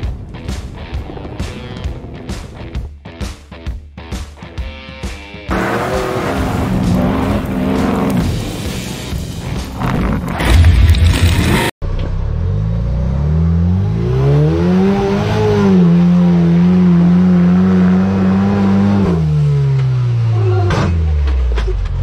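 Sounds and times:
pickup engine revving: 5.5s - 8.7s
truck burnout with tyre noise: 5.5s - 11.7s.

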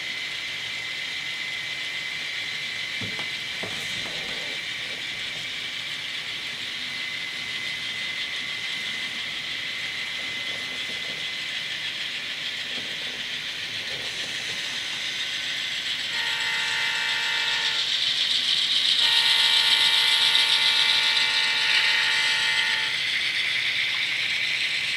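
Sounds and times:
model train wheels whirring on rails: 0.0s - 24.9s
model locomotive horn: 15.9s - 23.4s.

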